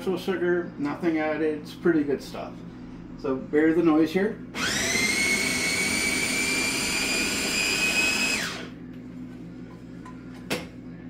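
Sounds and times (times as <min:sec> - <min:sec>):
food chopper motor whining: 0:04.6 - 0:08.8.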